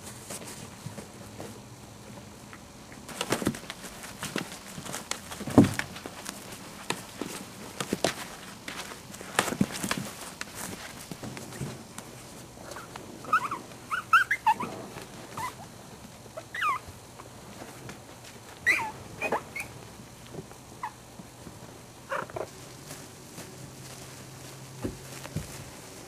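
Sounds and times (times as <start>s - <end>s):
puppy whimpering: 12.7s - 15.6s, 16.4s - 16.9s, 18.6s - 19.7s.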